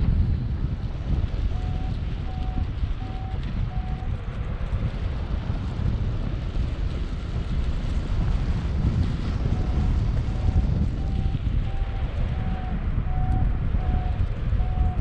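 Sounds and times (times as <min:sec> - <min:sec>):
wind rushing over microphone: 0:00.0 - 0:15.0
short electronic beeps: 0:01.6 - 0:04.1, 0:09.8 - 0:15.0.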